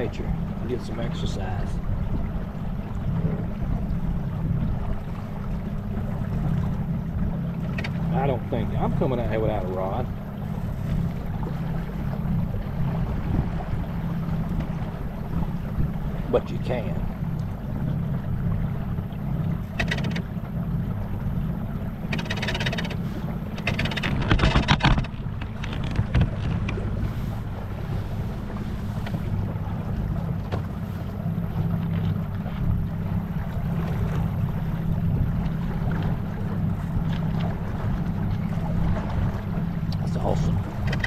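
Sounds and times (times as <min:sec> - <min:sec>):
water washing along boat hull: 0:00.0 - 0:41.0
wind on microphone: 0:00.0 - 0:41.0
splashes or knocks: 0:22.1 - 0:26.9.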